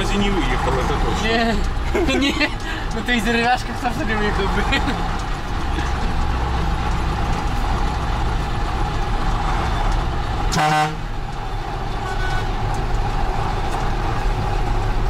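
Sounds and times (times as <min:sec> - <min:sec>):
diesel truck engine running: 0:00.0 - 0:15.0
vehicle horn toot: 0:10.5 - 0:11.0, 0:12.0 - 0:12.5.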